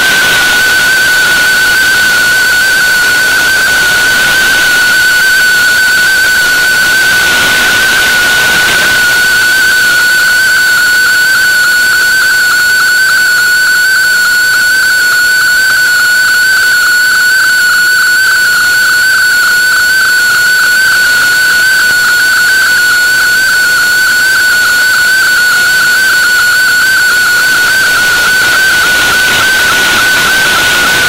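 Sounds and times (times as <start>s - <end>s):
wavering digital radio tone: 0.0s - 31.0s
steady radio hiss: 15.8s - 31.0s.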